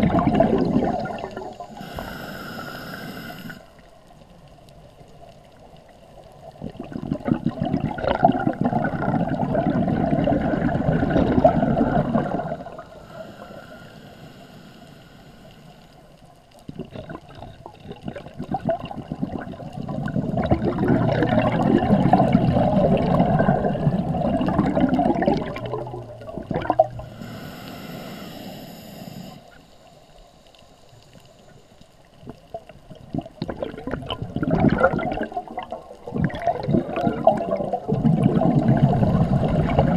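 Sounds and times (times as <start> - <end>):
gurgling bubbles of exhalation: 0.0 - 3.6, 6.5 - 13.2, 16.7 - 27.4, 32.2 - 39.9
hissing regulator inhalation: 0.9 - 3.8, 12.1 - 15.9, 24.7 - 30.4.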